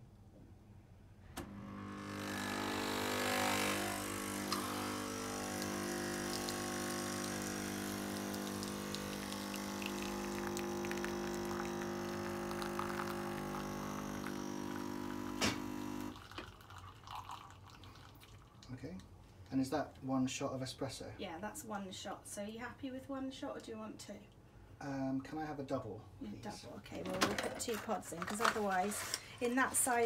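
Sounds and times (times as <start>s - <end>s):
coffee machine pump humming: 1.4s - 18.0s
coffee machine click: 15.3s - 15.8s.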